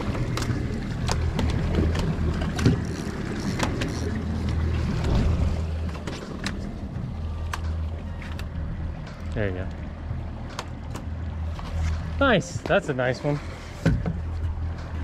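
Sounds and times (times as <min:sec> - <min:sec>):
outboard engines idling: 0:00.0 - 0:15.0
water and wind noise: 0:00.0 - 0:15.0.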